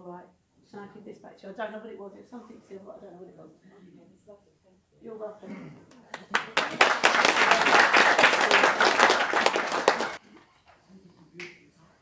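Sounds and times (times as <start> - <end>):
audience applauding: 6.1 - 10.2.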